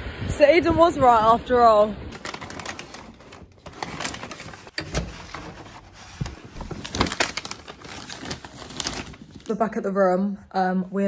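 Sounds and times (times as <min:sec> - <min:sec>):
paper bags rustling: 0:02.1 - 0:09.6.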